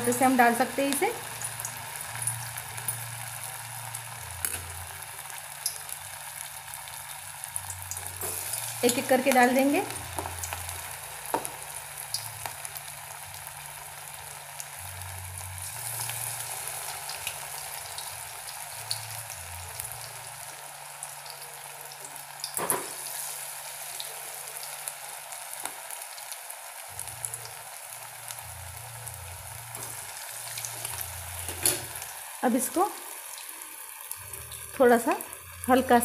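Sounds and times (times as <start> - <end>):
food sizzling in hot oil: 0.0 - 36.0.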